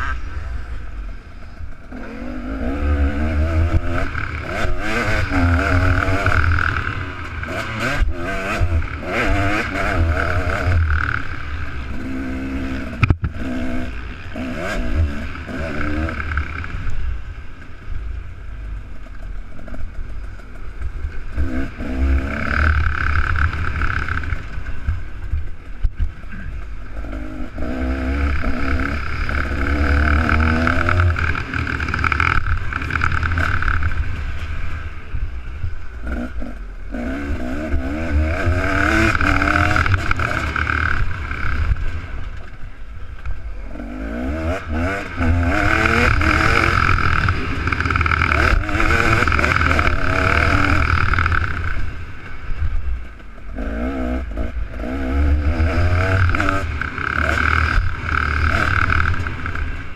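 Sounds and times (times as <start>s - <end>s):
low rumble: 0.0s - 9.5s
motorbike engine revving: 0.0s - 18.0s, 18.6s - 59.9s.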